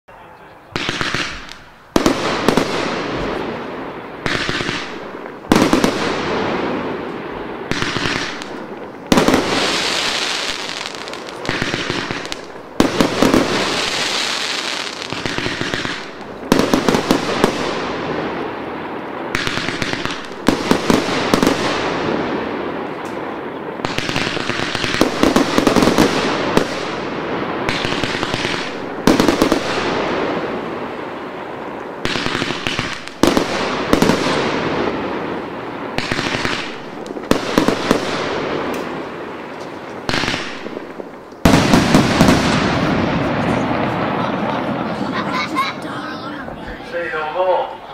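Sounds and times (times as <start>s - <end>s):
firework crackling: 0.6s - 47.9s
firework cake bangs: 40.0s - 45.0s.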